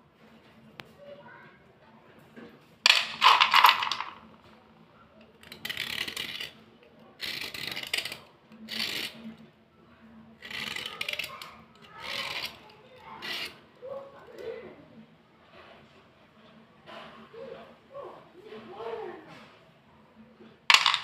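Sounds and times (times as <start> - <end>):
metal blade scraping slate: 5.4 - 6.6, 7.2 - 9.3, 12.0 - 12.6, 13.2 - 13.6.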